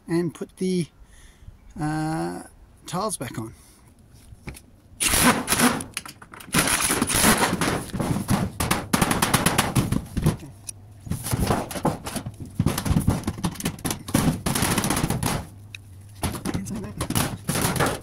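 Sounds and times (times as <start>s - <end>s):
sheet metal clattering: 5.2s - 10.5s, 11.1s - 15.6s, 16.2s - 18.0s.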